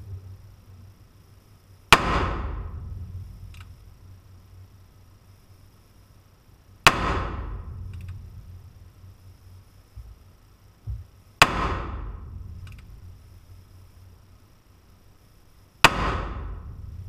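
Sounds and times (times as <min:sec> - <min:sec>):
gunshots with echo: 0:02.0 - 0:02.8, 0:11.4 - 0:12.2, 0:15.9 - 0:16.7
faint click: 0:03.5 - 0:03.7, 0:07.9 - 0:08.2, 0:12.6 - 0:12.9.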